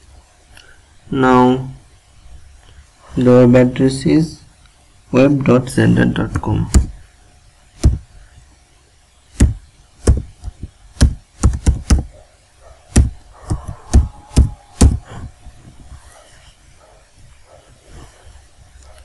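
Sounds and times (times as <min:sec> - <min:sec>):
laptop keyboard typing: 0:07.8 - 0:08.0, 0:09.4 - 0:12.1, 0:12.9 - 0:15.2.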